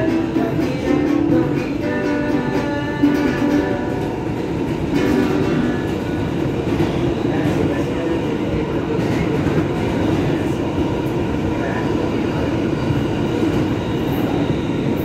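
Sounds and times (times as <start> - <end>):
guitar playing: 0.0 - 6.1
subway train running noise: 0.0 - 15.0.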